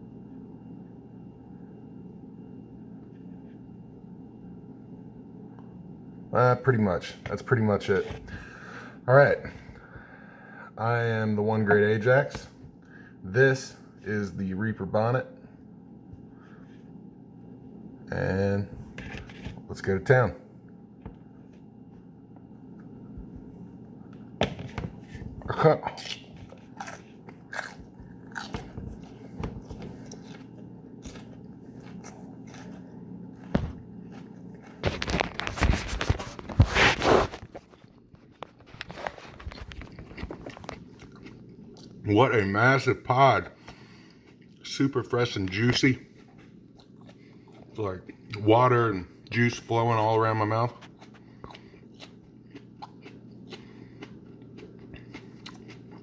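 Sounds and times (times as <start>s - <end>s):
steady low hum: 0.0s - 56.0s
wet chewing and crunching: 25.2s - 36.4s, 37.4s - 42.2s, 45.5s - 48.5s, 50.6s - 56.0s.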